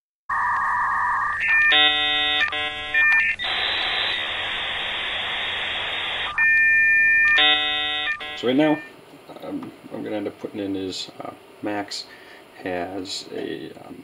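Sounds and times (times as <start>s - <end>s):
static-like hiss: 2.5s - 6.4s, 7.4s - 14.0s
steady beep tone: 6.2s - 8.9s.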